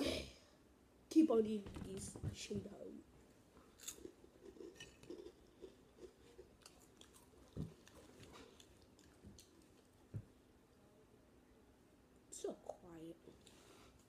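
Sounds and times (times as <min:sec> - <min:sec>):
chewing crunchy snacks: 0:03.7 - 0:10.0.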